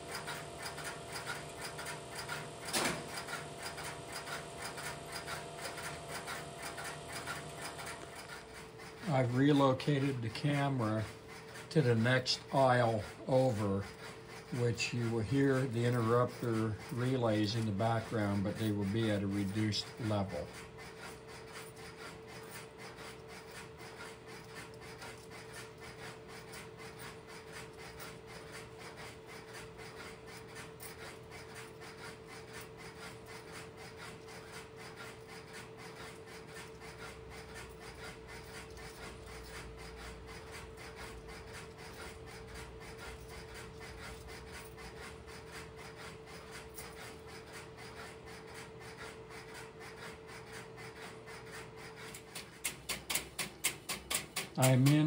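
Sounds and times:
steady hum: 0.0s - 55.0s
telephone switch relays clicking: 52.1s - 55.0s.

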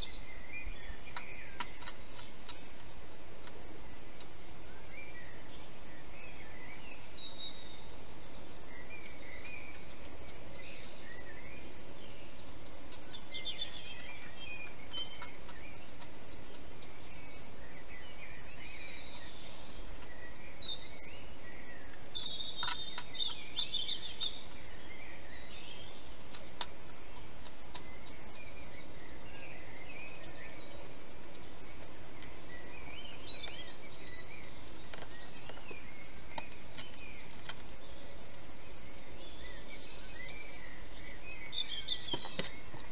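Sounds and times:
small birds chirping: 0.0s - 42.9s
sharp clicks: 22.2s - 23.4s, 26.3s - 28.5s.

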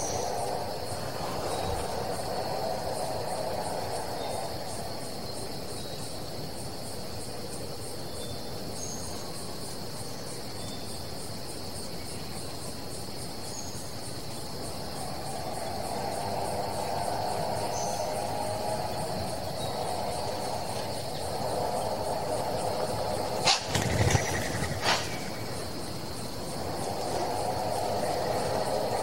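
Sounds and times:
insect trill pulsing: 0.0s - 29.0s
insects buzzing: 0.0s - 29.0s
soft rushing noise: 14.6s - 29.0s.

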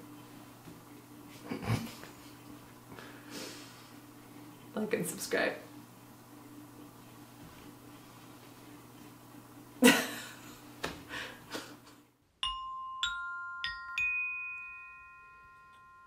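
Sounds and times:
bell-like chime notes: 12.4s - 16.0s.

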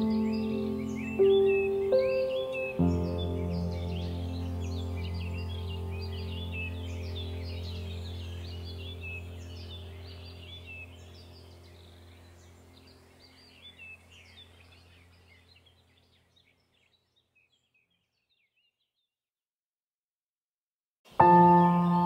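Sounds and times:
birds chirping: 0.0s - 19.1s
low steady drone: 3.2s - 15.0s.

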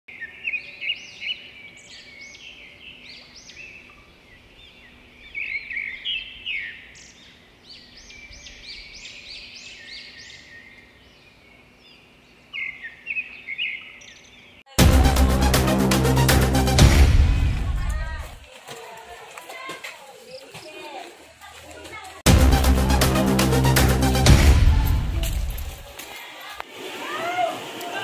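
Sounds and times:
birds chirping: 0.1s - 15.6s, 19.6s - 22.2s.

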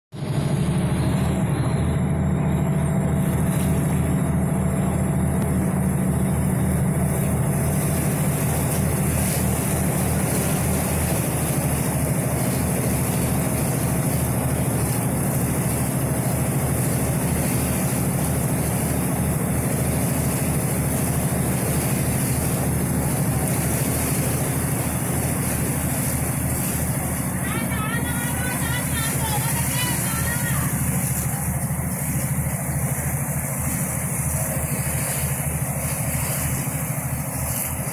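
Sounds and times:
ferry engine drone: 0.1s - 37.9s
water rushing: 0.2s - 37.9s.

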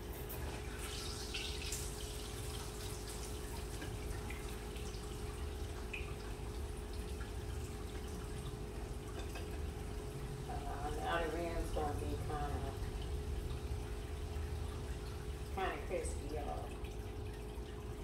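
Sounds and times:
tortilla sizzling in oil: 0.2s - 11.2s
steady low hum: 2.0s - 18.0s.

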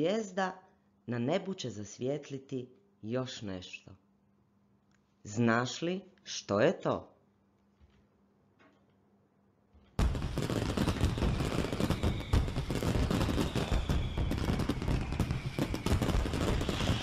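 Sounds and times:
fireworks bangs and crackles: 10.0s - 17.0s
faint falling whistle: 11.2s - 17.0s.

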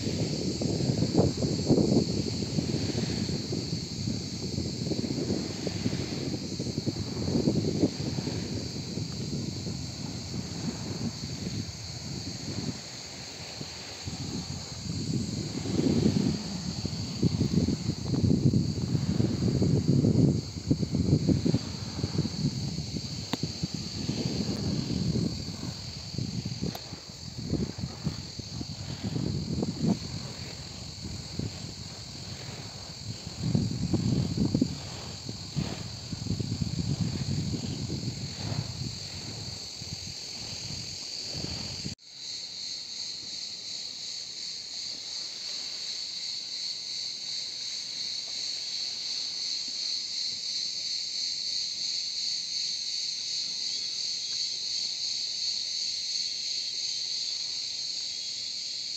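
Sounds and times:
cicadas chirring: 0.0s - 58.9s
low rumbling: 14.1s - 42.0s.

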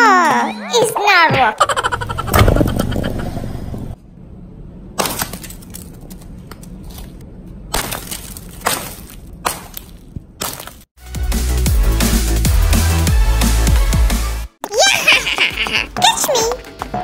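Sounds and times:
objects crunching under tyre: 5.0s - 10.9s.

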